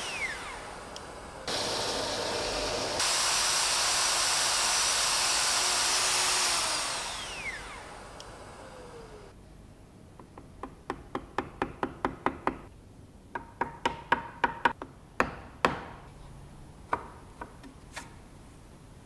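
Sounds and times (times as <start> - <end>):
chisel tapped into wood: 10.2 - 12.7, 13.3 - 16.0.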